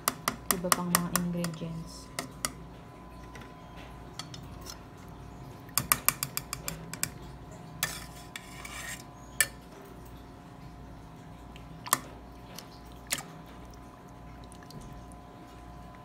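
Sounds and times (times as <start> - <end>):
metal scraping: 7.8 - 9.2.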